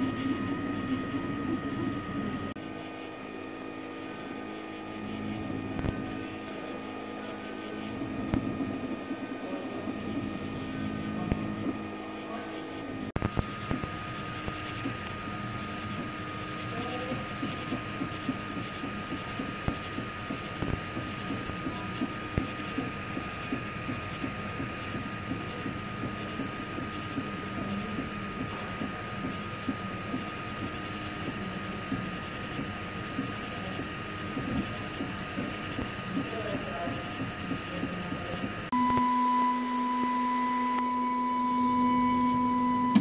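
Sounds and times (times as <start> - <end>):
constant whine: 0.0 - 43.0
stepper motors whirring: 4.5 - 38.7.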